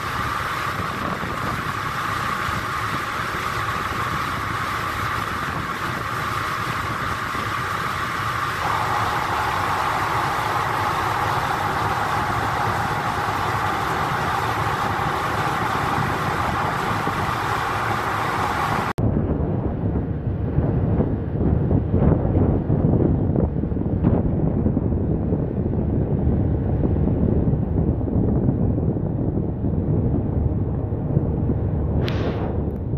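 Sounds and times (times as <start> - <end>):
rushing water: 0.0 - 19.0
boat engine drone: 0.0 - 32.9
wind gusts on microphone: 0.0 - 32.9.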